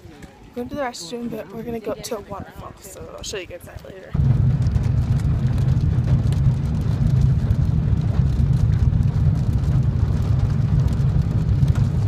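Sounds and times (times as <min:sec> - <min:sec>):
road and engine rumble: 0:01.6 - 0:12.0
raindrops ticking on glass: 0:04.2 - 0:12.0.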